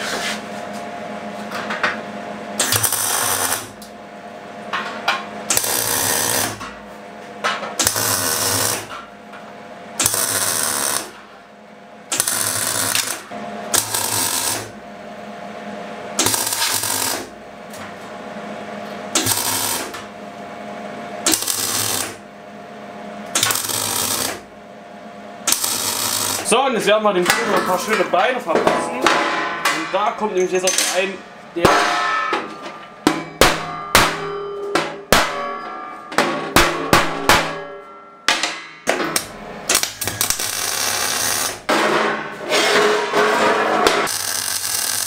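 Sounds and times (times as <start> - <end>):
welding arc crackling: 2.6 - 3.8, 5.5 - 6.6, 7.8 - 8.9, 10.0 - 11.2, 12.1 - 14.8, 16.2 - 17.3, 19.2 - 20.0, 21.3 - 22.2, 23.4 - 24.5, 25.5 - 26.6, 39.2 - 41.7, 44.0 - 45.0.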